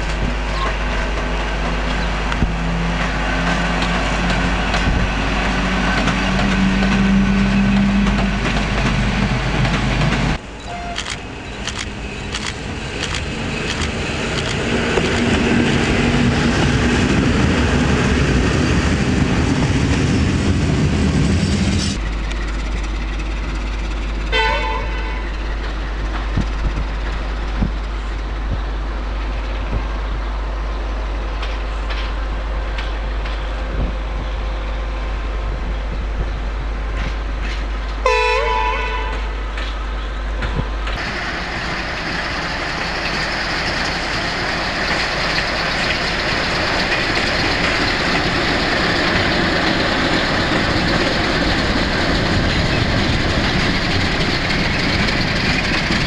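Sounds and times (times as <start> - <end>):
diesel locomotive engine hum: 0.0 - 56.0
locomotive running loudly: 0.0 - 56.0
train horn toot: 10.6 - 11.1, 24.3 - 25.4, 38.0 - 39.6.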